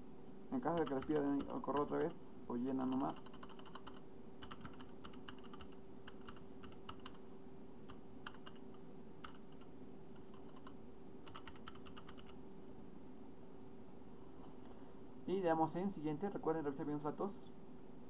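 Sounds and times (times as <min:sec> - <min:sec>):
faint steady hum: 0:00.0 - 0:18.0
keyboard typing: 0:00.6 - 0:07.2, 0:07.9 - 0:12.4.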